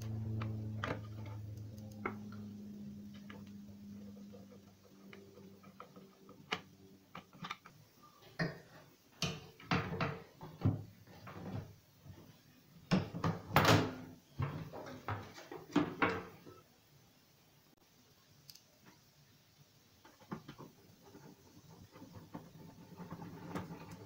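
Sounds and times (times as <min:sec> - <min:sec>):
plastic knocks and clatter: 0:20.1 - 0:24.0.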